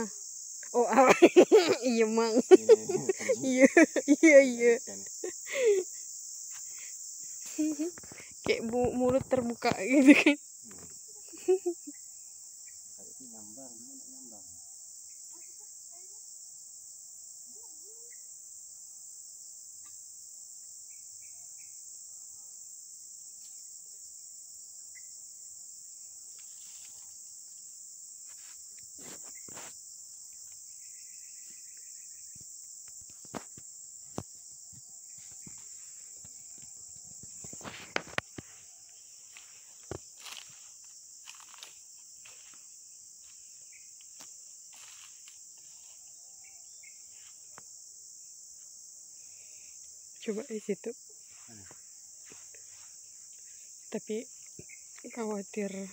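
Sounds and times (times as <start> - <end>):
high-pitched insect chorus: 0.0 - 55.9
rustles: 26.3 - 27.3, 28.2 - 30.7, 31.4 - 46.2.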